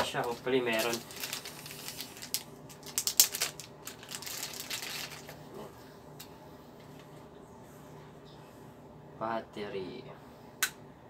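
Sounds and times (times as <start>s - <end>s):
plastic packaging crinkling: 0.0s - 5.4s.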